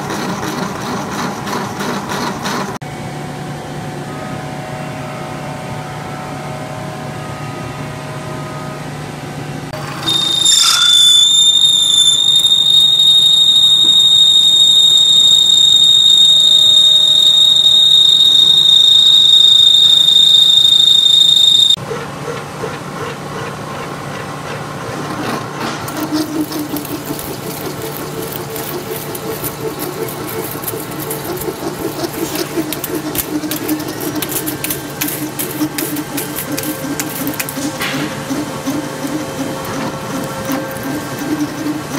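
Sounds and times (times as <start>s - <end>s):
drill squealing through aluminium: 9.8s - 21.8s, 25.8s - 41.9s
milling machine hum: 9.8s - 21.8s, 25.8s - 41.9s
rapid ticking of flying chips: 26.0s - 41.9s.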